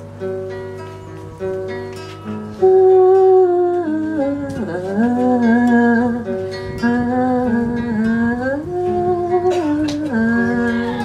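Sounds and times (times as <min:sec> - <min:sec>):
acoustic guitar: 0:00.0 - 0:11.0
woman singing held notes: 0:08.8 - 0:11.0.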